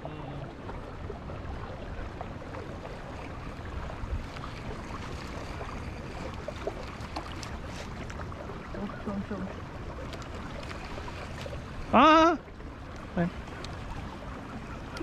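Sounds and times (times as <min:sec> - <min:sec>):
water around boat: 0:00.0 - 0:15.0
faint clicks: 0:12.9 - 0:13.8.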